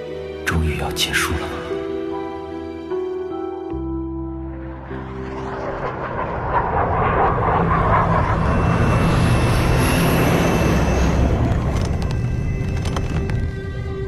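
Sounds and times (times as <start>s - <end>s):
jet engines rushing: 4.4s - 13.4s.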